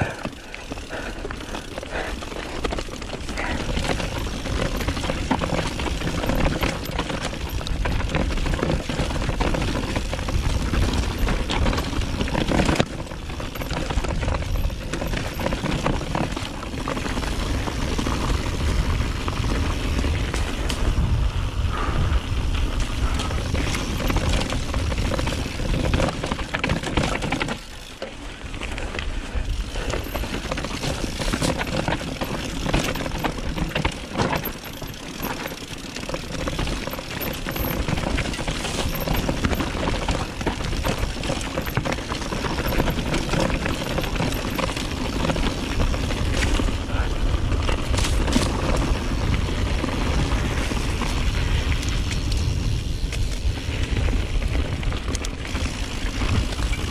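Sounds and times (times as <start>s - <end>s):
bike knocking on bumps: 0.0s - 21.0s, 22.7s - 28.2s, 29.6s - 56.9s
bike rattling over rough trail: 0.0s - 56.9s
wind on microphone: 18.4s - 25.7s.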